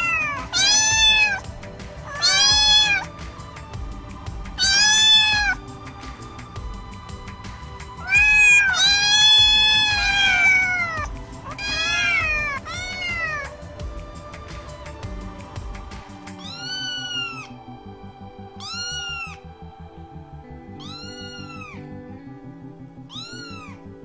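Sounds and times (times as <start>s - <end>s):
kitten meowing: 0.0s - 3.1s, 4.6s - 5.6s, 8.0s - 13.6s, 16.4s - 17.6s, 18.6s - 19.5s, 20.8s - 21.9s, 23.0s - 23.8s.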